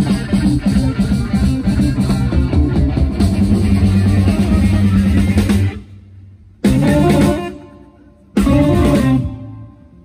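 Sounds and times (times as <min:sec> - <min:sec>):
live rock band playing: 0:00.0 - 0:10.0
full-band accented hit: 0:08.4 - 0:09.7.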